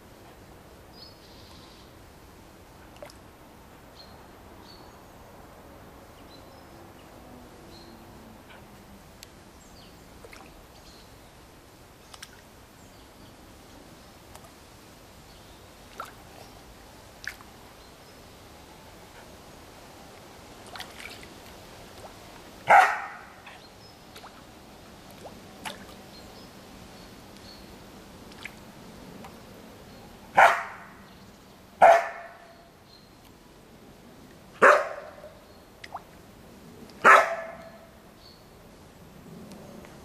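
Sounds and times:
dog barking: 0:22.7 - 0:23.3, 0:30.4 - 0:30.9, 0:31.8 - 0:32.5, 0:34.6 - 0:35.2, 0:37.0 - 0:37.8.

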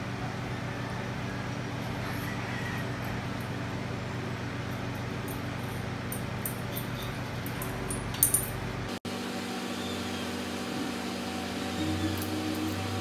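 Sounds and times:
steady low hum: 0:00.0 - 0:13.0
sheet metal pieces clinking: 0:04.8 - 0:08.6.

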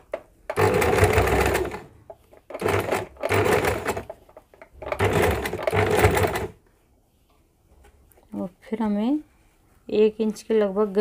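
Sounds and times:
electric sewing machine stitching: 0:00.5 - 0:01.9, 0:02.5 - 0:04.2, 0:04.8 - 0:06.6.

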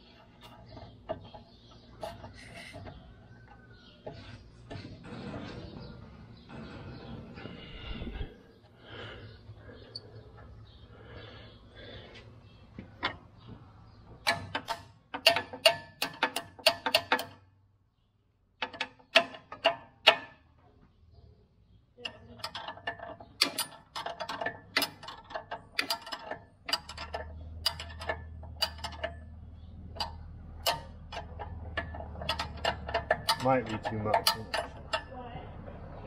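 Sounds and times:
baler mechanism ratcheting and clicking: 0:14.2 - 0:17.5, 0:18.6 - 0:20.4, 0:22.0 - 0:35.2.

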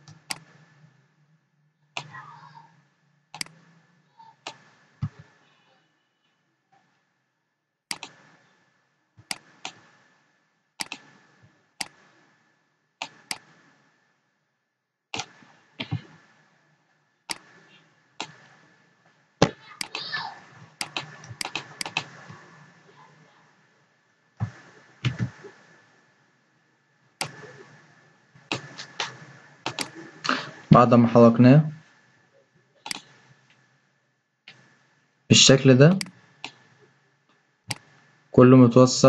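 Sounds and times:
computer mouse clicking: 0:00.0 - 0:00.6, 0:02.0 - 0:02.2, 0:03.4 - 0:03.6, 0:04.4 - 0:05.3, 0:07.9 - 0:08.4, 0:09.2 - 0:10.0, 0:10.8 - 0:12.2, 0:13.0 - 0:13.7, 0:15.1 - 0:16.2, 0:17.3 - 0:18.6, 0:20.8 - 0:22.5, 0:27.2 - 0:27.8, 0:28.5 - 0:30.6, 0:32.8 - 0:33.6, 0:35.9 - 0:36.7, 0:37.7 - 0:38.0
faint steady tone: 0:00.0 - 0:07.5.

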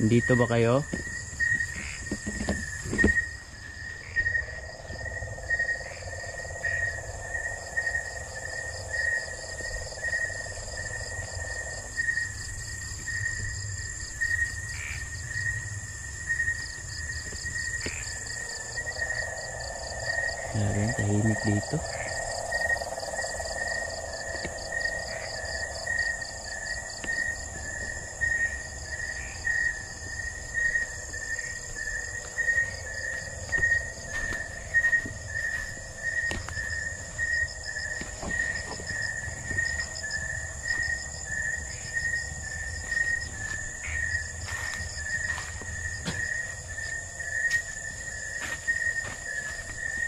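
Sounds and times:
rustles and steps in undergrowth: 0:32.2 - 0:40.0, 0:42.6 - 0:50.0.

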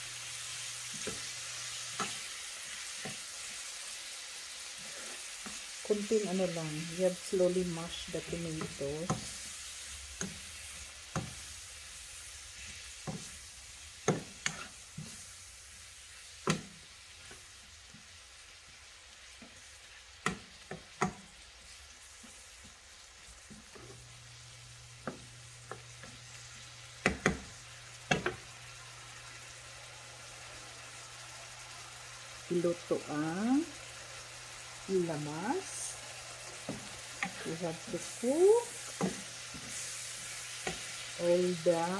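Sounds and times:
vegetables sizzling in a pan: 0:00.0 - 0:41.9
metal spoon knocking on pan: 0:27.0 - 0:27.5.

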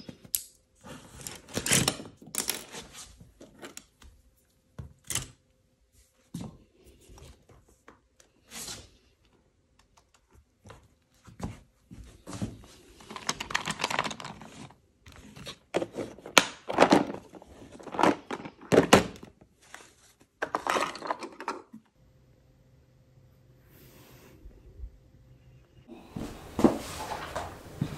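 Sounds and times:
pencils clattering in plastic box: 0:01.0 - 0:03.9, 0:13.0 - 0:19.3, 0:20.4 - 0:21.8.

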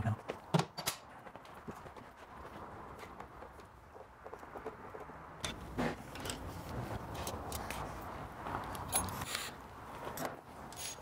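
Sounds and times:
hand tools and plastic panels clattering: 0:00.4 - 0:01.1, 0:05.4 - 0:07.8.

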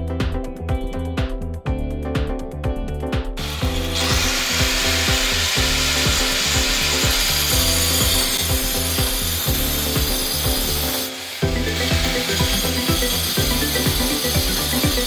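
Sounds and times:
angle grinder cutting stone: 0:03.4 - 0:15.0.

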